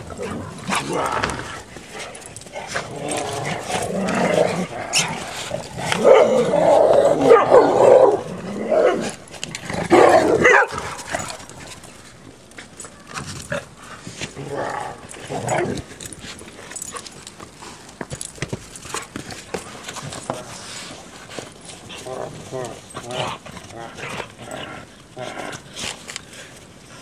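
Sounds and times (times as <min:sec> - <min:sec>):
dogs barking: 0:07.2 - 0:08.2, 0:09.9 - 0:11.0.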